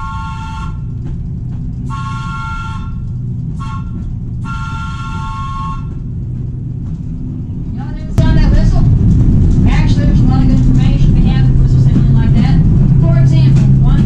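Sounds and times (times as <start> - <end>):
train air horn blasts: 0.0 - 1.0, 1.8 - 6.2
low rumble: 0.0 - 14.0.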